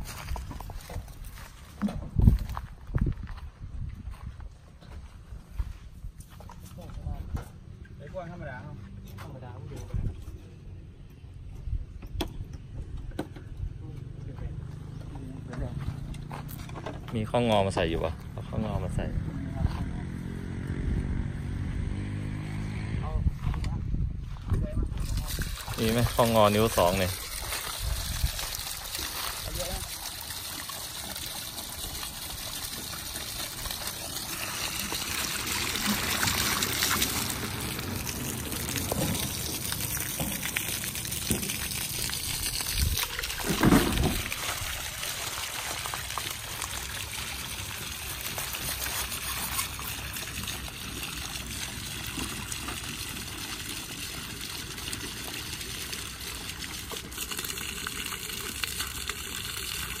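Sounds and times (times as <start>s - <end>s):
water gushing onto ground: 0.0s - 3.3s, 14.4s - 23.2s, 24.6s - 60.0s.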